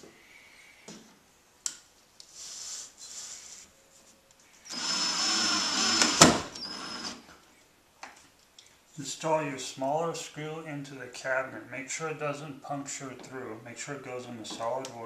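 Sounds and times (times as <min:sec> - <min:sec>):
cordless drill whining: 0:04.7 - 0:07.2
drill click: 0:04.7 - 0:07.2.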